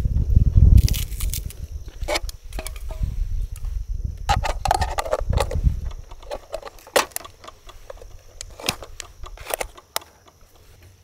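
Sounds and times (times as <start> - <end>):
metal lid clattering on tin: 4.3 - 8.8.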